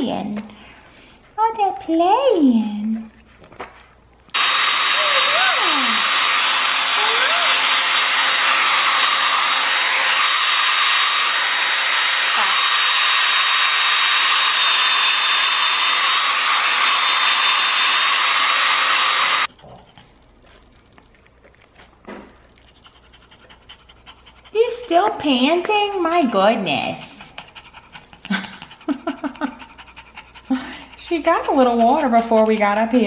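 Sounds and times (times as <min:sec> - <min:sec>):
hair dryer blowing: 0:04.3 - 0:19.5, 0:30.5 - 0:33.0.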